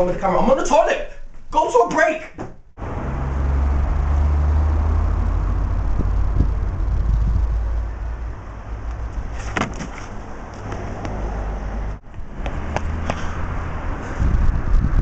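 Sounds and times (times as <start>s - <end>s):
low street rumble: 2.8s - 15.0s.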